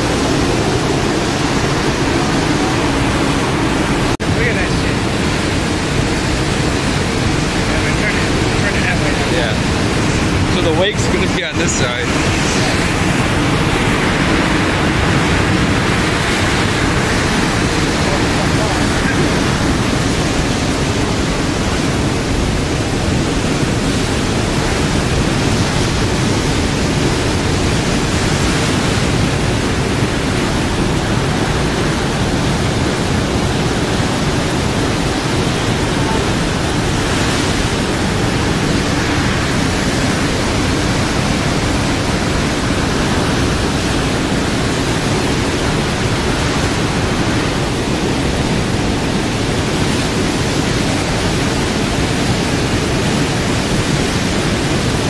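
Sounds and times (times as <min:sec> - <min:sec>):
churning white water rushing: 0:00.0 - 0:55.0.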